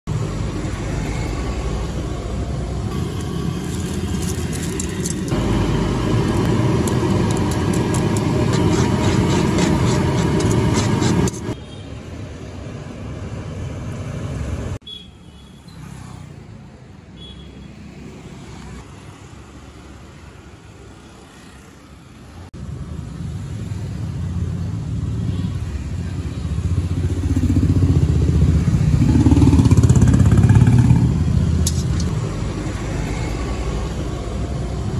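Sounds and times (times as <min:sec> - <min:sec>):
traffic rumble: 0:00.1 - 0:14.8, 0:15.9 - 0:34.9
cooking sounds: 0:02.9 - 0:11.6.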